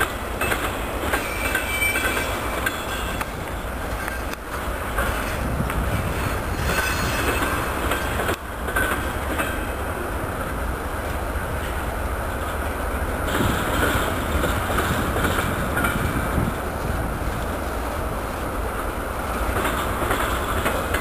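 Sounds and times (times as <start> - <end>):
train wheels rumbling on rail: 0.0 - 21.0
faint wheel squeals: 1.1 - 3.2.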